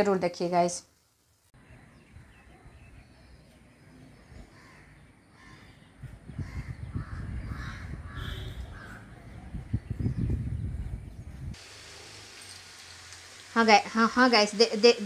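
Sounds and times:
crows cawing: 4.4 - 5.8, 6.4 - 9.1
wind rumbling on microphone: 5.4 - 11.6.

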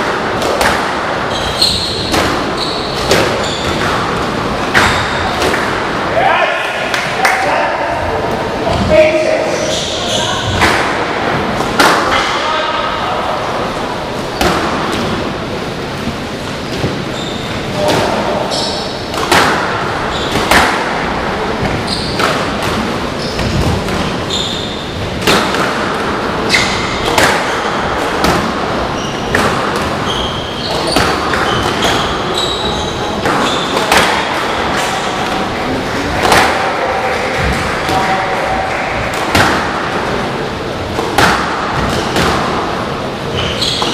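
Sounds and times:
ball striking walls: 0.0 - 6.1, 9.7 - 12.4, 14.2 - 15.4, 16.0 - 43.9
racket hitting ball: 0.0 - 6.1, 10.4 - 12.3, 14.4 - 15.3, 17.8 - 43.9
hall noise: 0.0 - 43.9
shoes squeaking on wooden floor: 1.3 - 5.6, 8.6 - 10.7, 16.0 - 19.1, 20.0 - 20.6, 21.6 - 22.3, 23.1 - 25.0, 26.4 - 28.0, 28.7 - 35.6, 43.2 - 43.9.

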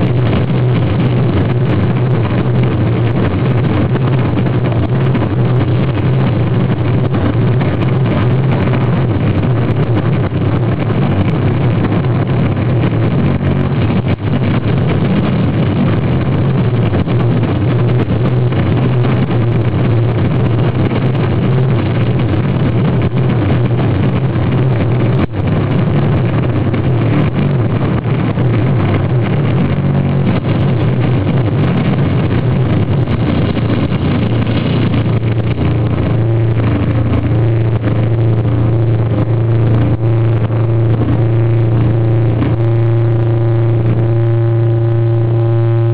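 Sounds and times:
deep hum: 0.0 - 45.9
distorted electric guitar drone: 0.0 - 45.9
guitar feedback tones: 26.8 - 45.9.

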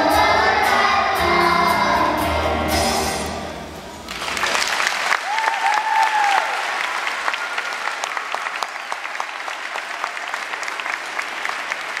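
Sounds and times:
crowd applauding: 4.0 - 12.0.

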